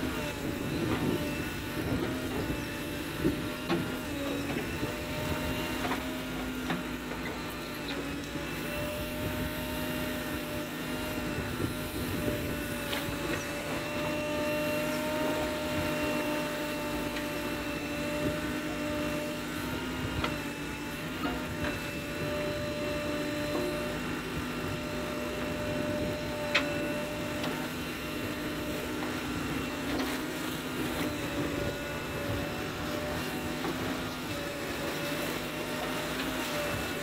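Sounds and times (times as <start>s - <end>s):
backhoe loader running with whine: 0.0s - 37.0s.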